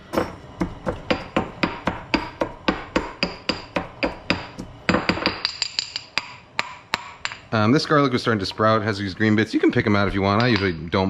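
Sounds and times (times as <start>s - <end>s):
garlic being pounded: 0.0s - 7.4s.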